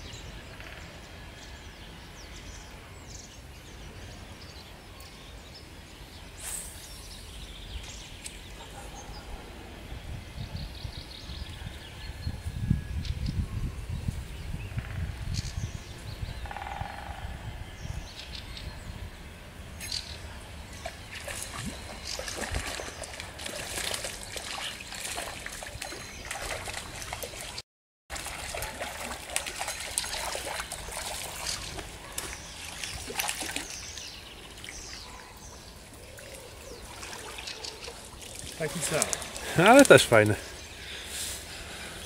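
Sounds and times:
stream trickling: 19.8 - 40.9
fish splashing: 20.9 - 33.8.

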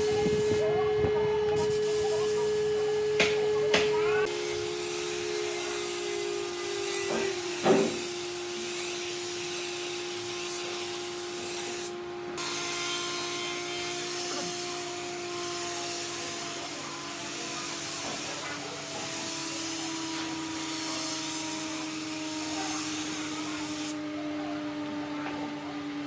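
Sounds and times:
small motor humming: 0.0 - 26.0
sharp knock: 7.6 - 8.0.

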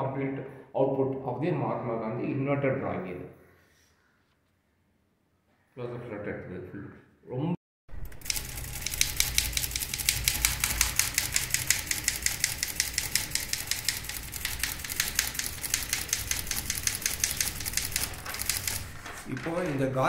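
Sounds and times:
typewriter keystrokes: 7.9 - 20.0.

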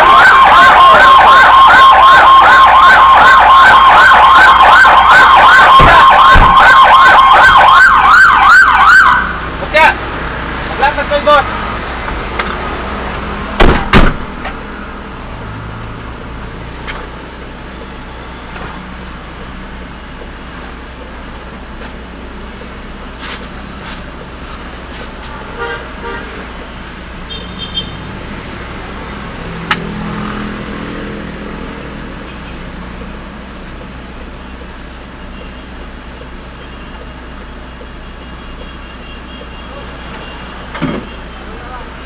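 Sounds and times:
road traffic passing: 0.0 - 42.0
loud sharp knocks: 5.8 - 6.6, 13.6 - 14.4.

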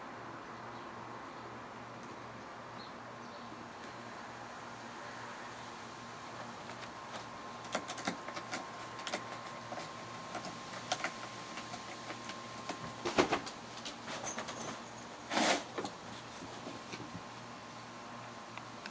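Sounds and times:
cat claws scratching cardboard: 6.6 - 14.1
knocks and rustling: 7.2 - 17.3.

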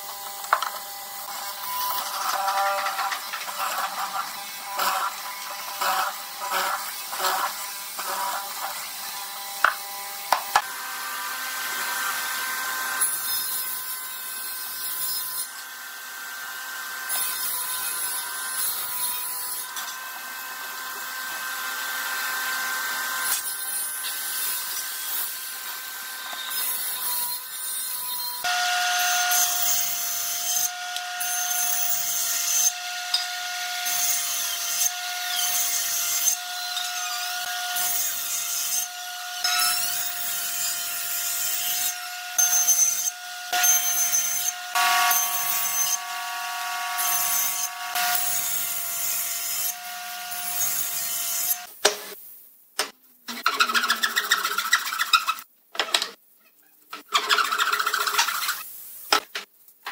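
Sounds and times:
mortising machine cutting wood: 0.0 - 13.2
table saw cutting board: 0.0 - 52.2, 57.0 - 59.9.

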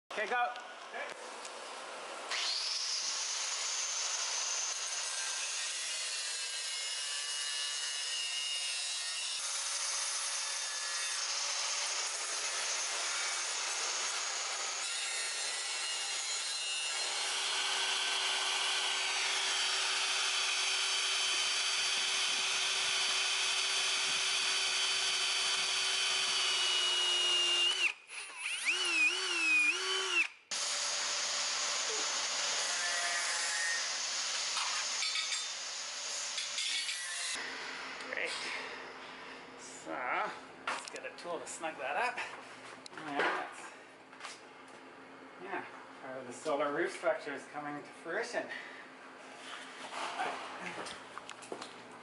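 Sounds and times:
angle grinder cutting steel: 2.3 - 38.3
power tool whining: 16.9 - 33.1
cordless drill boring into metal: 17.0 - 33.1.

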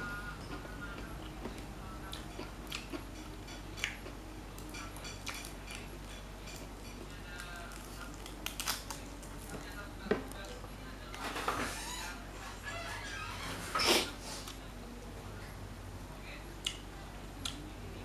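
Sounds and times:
chewing crispy food: 0.2 - 11.2.

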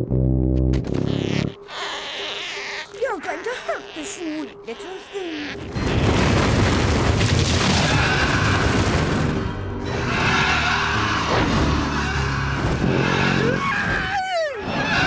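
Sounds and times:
rumble and rush of earth: 5.7 - 10.1
dramatic music: 7.7 - 14.0.

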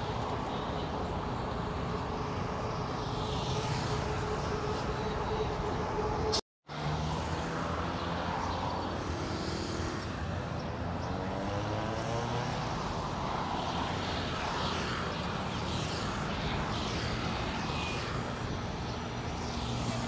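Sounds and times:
vehicle accelerating: 2.1 - 13.8.

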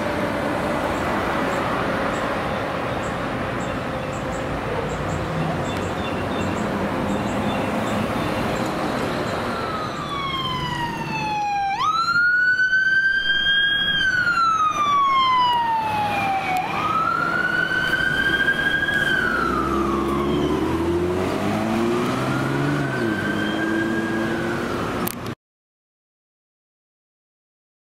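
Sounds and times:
traffic noise: 0.0 - 25.4
lower rising siren tone: 8.7 - 25.1
electronic wail siren: 8.9 - 25.0.

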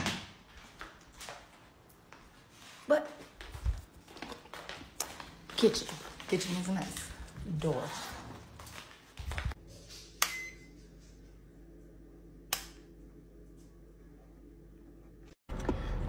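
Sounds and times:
faint high beep: 10.2 - 10.7.

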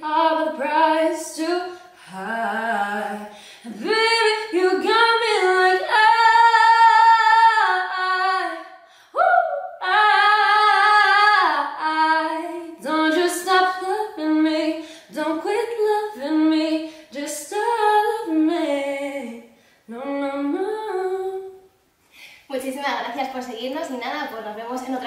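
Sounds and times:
woman singing a cappella: 0.0 - 21.7.

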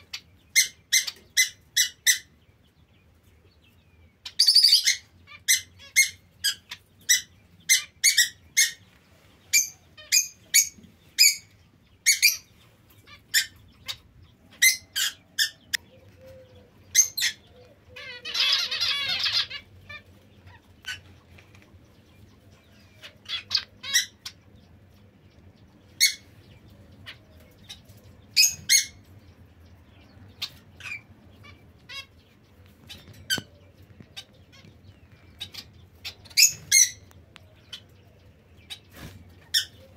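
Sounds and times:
finches calling: 9.5 - 21.5.

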